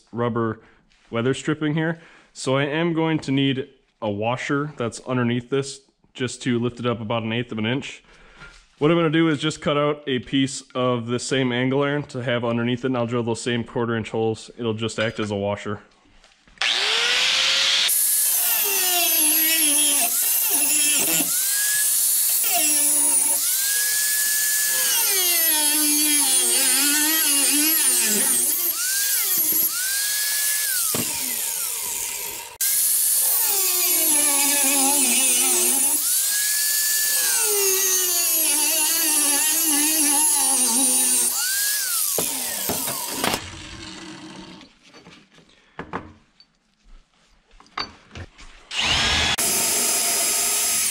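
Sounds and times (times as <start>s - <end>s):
angle grinder cutting steel: 16.6s - 44.7s, 48.7s - 50.9s.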